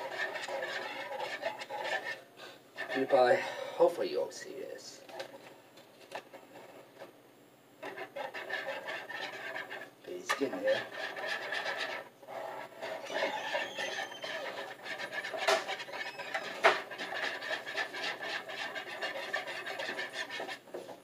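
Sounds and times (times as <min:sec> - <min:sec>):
whisk knocking bowl: 0:00.0 - 0:02.2, 0:07.8 - 0:21.0
whisk scraping bowl: 0:00.0 - 0:03.9, 0:07.8 - 0:21.0.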